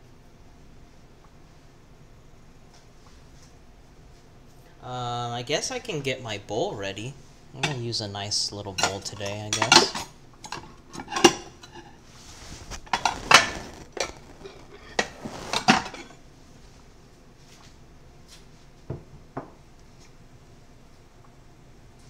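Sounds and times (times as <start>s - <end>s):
bowl and utensils clinking: 8.8s - 11.8s.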